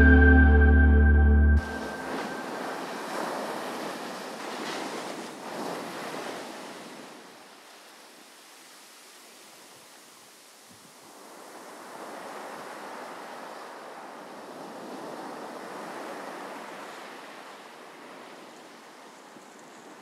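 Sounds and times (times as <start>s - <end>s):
ocean surf washing onto beach: 1.6s - 7.2s.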